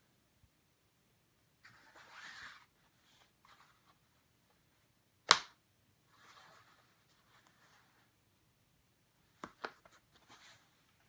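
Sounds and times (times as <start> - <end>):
fabric rustling and sliding: 1.6 - 4.1, 6.1 - 8.1.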